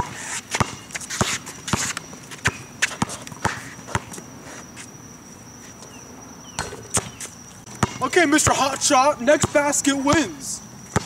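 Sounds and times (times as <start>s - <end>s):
basketball bouncing: 0.0s - 1.8s, 6.6s - 8.6s, 9.4s - 11.0s
sneakers scuffing: 0.0s - 8.6s.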